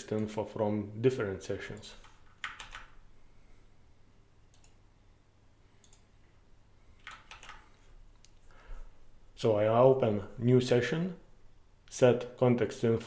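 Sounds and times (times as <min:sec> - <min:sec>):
faint mouse clicks: 0:04.5 - 0:04.8, 0:05.8 - 0:06.1.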